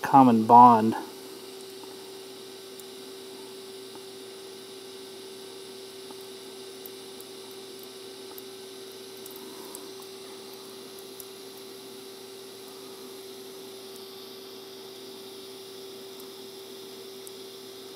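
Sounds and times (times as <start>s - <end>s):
welding arc hissing and humming: 0.0s - 17.9s
faint crackles: 5.5s - 11.7s.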